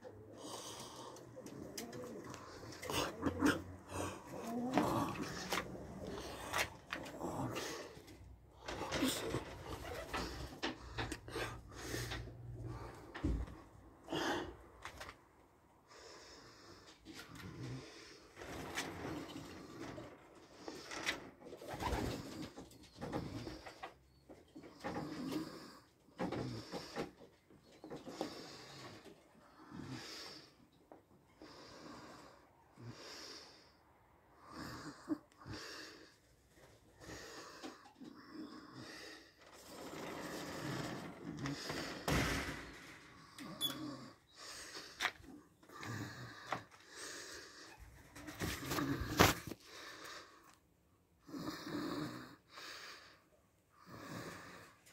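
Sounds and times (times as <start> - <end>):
man breathing: 0.0 - 15.0, 15.7 - 18.7, 27.9 - 50.7, 52.4 - 54.9.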